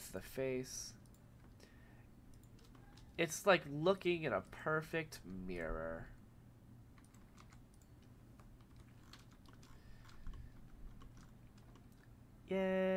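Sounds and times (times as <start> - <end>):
low steady hum: 0.0 - 12.9
computer keyboard keystrokes: 2.3 - 3.2, 7.0 - 12.1.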